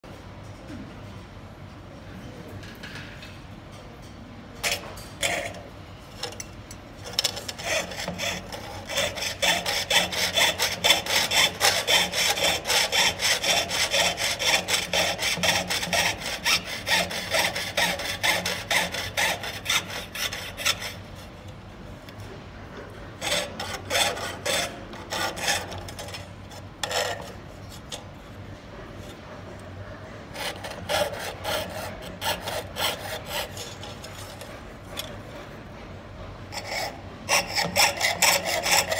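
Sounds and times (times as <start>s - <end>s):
saw blade rasping through metal: 4.6s - 21.4s, 23.1s - 28.2s, 30.3s - 35.6s, 36.5s - 38.9s.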